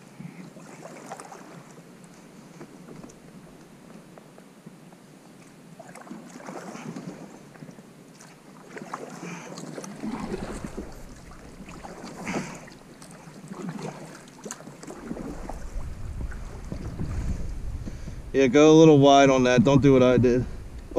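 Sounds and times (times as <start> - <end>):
kayak paddles splashing in water: 0.1 - 4.4, 5.0 - 18.4.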